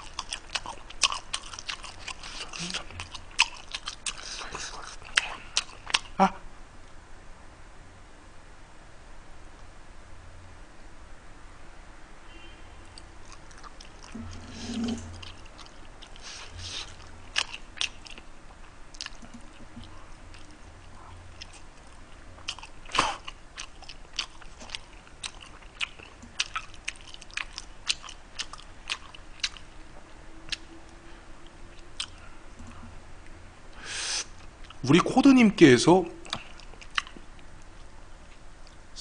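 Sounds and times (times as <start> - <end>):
close chewing with mouth clicks: 0.0 - 6.2, 13.0 - 29.7, 31.7 - 32.8, 36.2 - 38.8.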